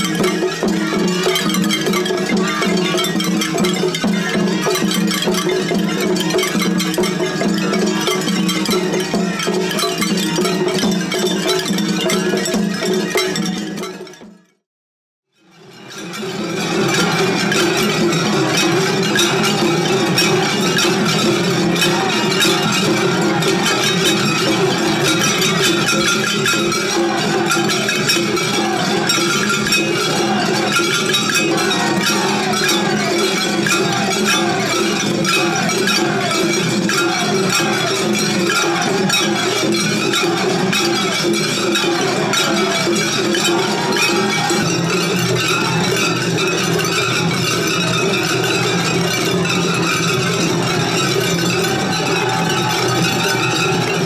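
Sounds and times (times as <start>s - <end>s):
hand cymbals clanging: 0.0s - 14.2s, 15.7s - 54.0s
held melodic tones: 15.8s - 54.0s.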